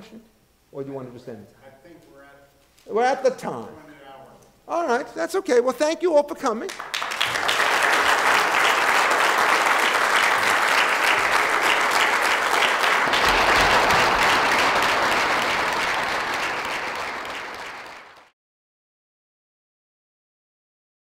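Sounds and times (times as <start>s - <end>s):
audience applauding: 6.7s - 18.3s.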